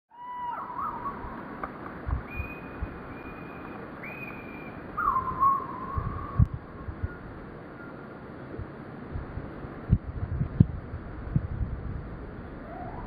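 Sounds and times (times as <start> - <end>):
slowed-down birdsong whistles: 0.1 - 8.6.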